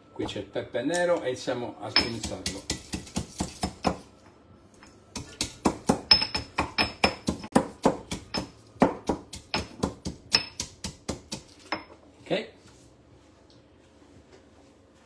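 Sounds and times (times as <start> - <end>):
pestle pounding in mortar: 1.9 - 4.1, 5.1 - 11.8.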